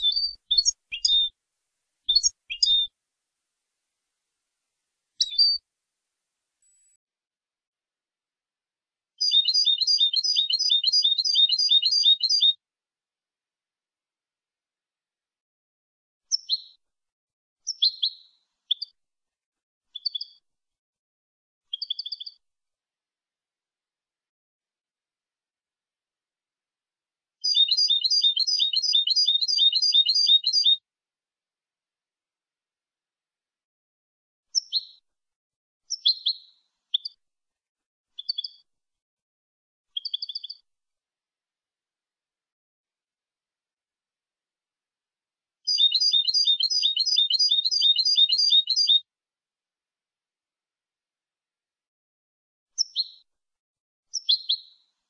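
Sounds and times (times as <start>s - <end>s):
goldfinch singing: 0.0s - 1.3s, 2.1s - 2.9s, 5.2s - 5.6s, 9.2s - 12.5s, 27.4s - 30.8s, 45.7s - 49.0s.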